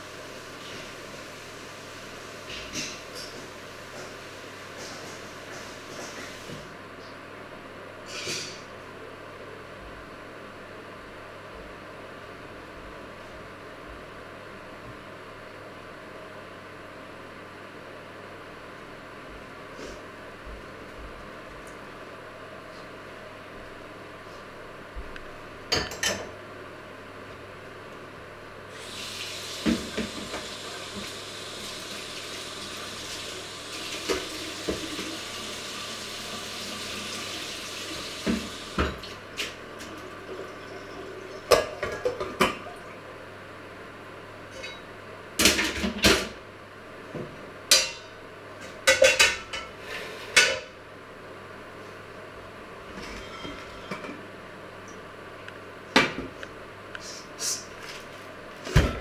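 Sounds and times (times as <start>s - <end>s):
tap running into metal sink: 33.9s - 35.3s
pots and pans clanking: 40.5s - 42.7s, 47.7s - 48.1s, 48.8s - 50.7s, 52.9s - 54.2s.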